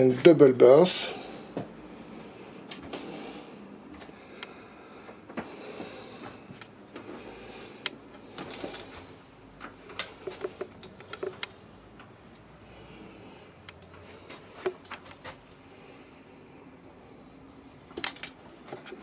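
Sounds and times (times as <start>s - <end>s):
small handling clicks and knocks: 9.6s - 12.5s, 17.9s - 19.0s.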